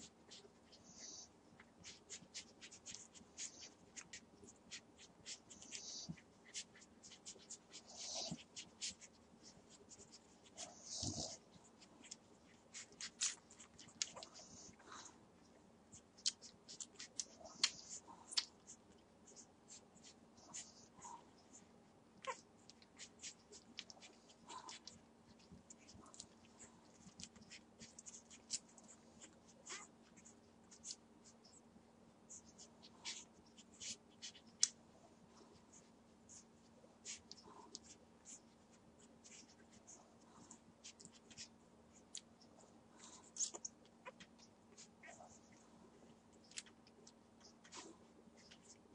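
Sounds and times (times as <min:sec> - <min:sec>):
puppies suckling: 0:00.0 - 0:15.2, 0:16.0 - 0:31.4
faint steady hum: 0:00.0 - 0:48.9.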